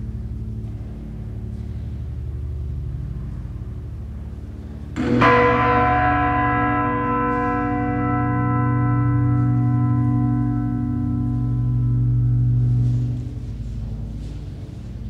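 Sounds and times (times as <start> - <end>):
low hum: 0.0 - 15.0
large bell ringing: 4.2 - 15.0.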